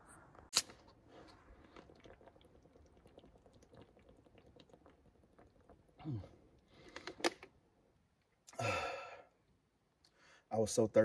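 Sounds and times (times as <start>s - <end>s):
man swallowing: 1.7s - 6.6s.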